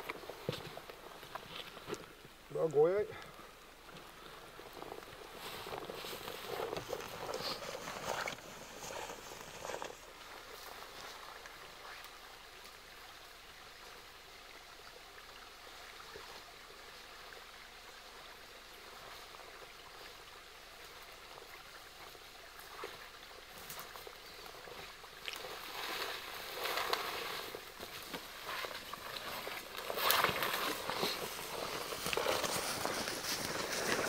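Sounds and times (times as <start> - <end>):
footsteps in undergrowth: 0.0 - 2.3, 3.8 - 12.0, 22.7 - 34.0
faint outdoor hiss: 0.0 - 34.0
rustling brush: 4.1 - 12.0, 25.4 - 34.0.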